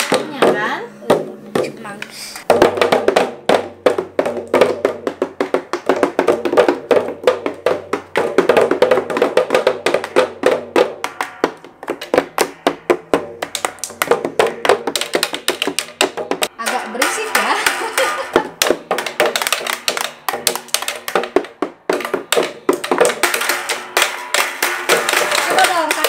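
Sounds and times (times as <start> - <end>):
plastic toy drums beaten: 0.0 - 26.0.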